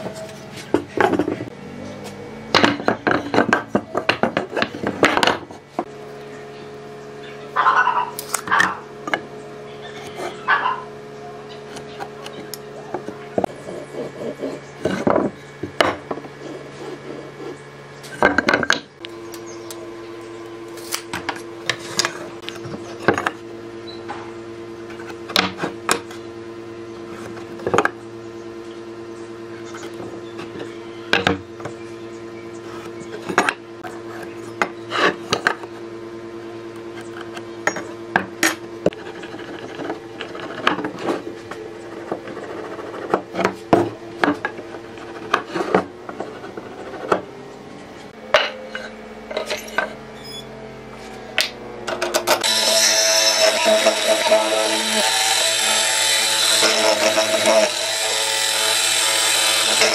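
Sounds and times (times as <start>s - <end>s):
pencil scratching on wood: 13.5s - 14.6s, 38.9s - 40.6s, 41.8s - 43.4s.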